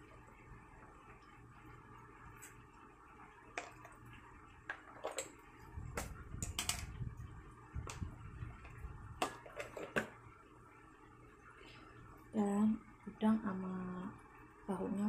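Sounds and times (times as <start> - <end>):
low rumble: 5.6 - 9.2.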